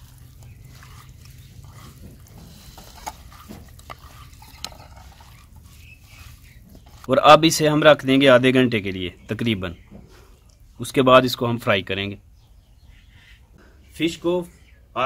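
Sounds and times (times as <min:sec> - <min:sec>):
wet hand mixing sounds: 0:00.0 - 0:09.4.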